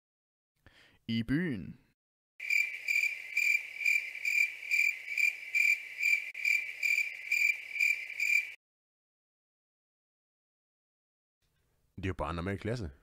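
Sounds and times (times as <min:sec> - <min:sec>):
crickets chirping: 0:02.4 - 0:08.6.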